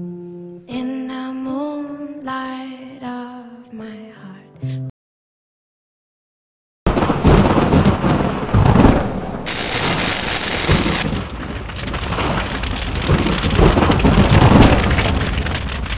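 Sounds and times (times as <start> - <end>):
loud rumbling crackling noise: 6.9 - 15.9.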